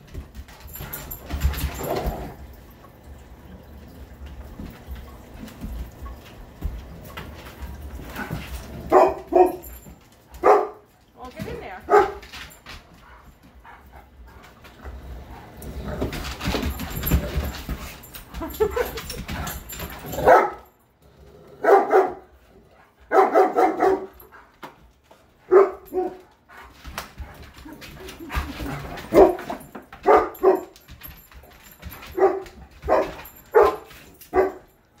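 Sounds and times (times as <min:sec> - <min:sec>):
dogs barking: 0:08.9 - 0:09.7, 0:10.4 - 0:10.9, 0:11.9 - 0:12.2, 0:20.1 - 0:20.7, 0:21.6 - 0:22.3, 0:23.1 - 0:24.2, 0:25.5 - 0:26.2, 0:29.1 - 0:30.8, 0:32.1 - 0:34.7.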